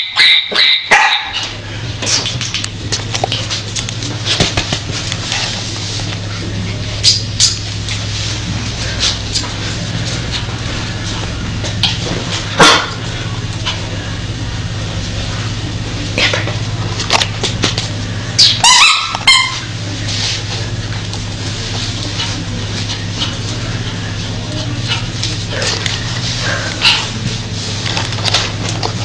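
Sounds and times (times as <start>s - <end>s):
small dog barking: 0.0s - 1.4s
steady low hum: 0.0s - 29.0s.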